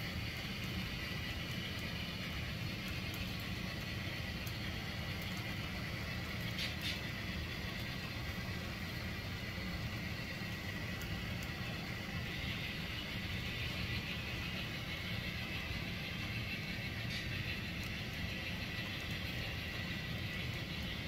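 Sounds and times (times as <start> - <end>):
model train wheels rumbling on rail: 0.0 - 21.0.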